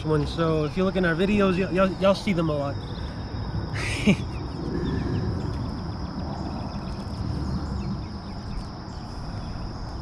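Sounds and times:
low rumble: 2.8s - 10.0s.

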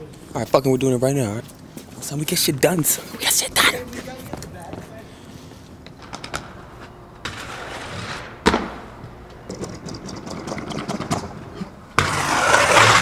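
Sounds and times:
skateboard wheels rolling on concrete: 5.9s - 13.0s
skateboard clack: 7.2s - 8.8s, 9.5s - 13.0s.

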